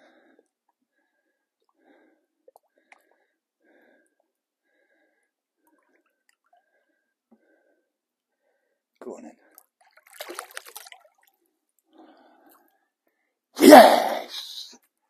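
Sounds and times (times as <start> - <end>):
small drips and clicks: 0.3 - 3.4, 5.1 - 7.6, 9.4 - 13.2
faint water sloshing: 1.6 - 7.7, 9.4 - 12.8.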